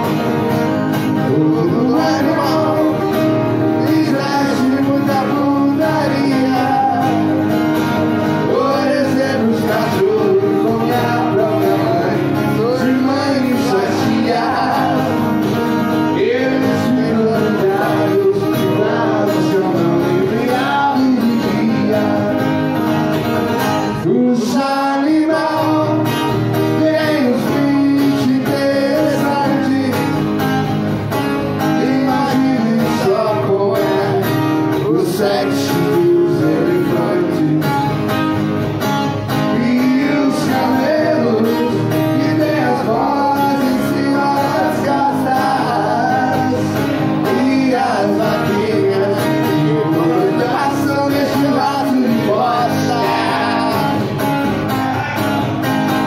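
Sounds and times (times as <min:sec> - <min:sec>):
acoustic guitars strummed: 0:00.0 - 0:56.0
person singing: 0:39.4 - 0:54.2.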